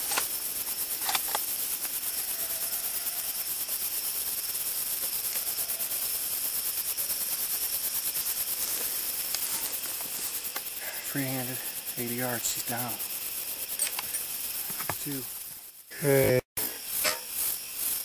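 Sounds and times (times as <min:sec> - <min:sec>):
crickets trilling: 0:00.0 - 0:18.0
small clicks: 0:01.0 - 0:01.4.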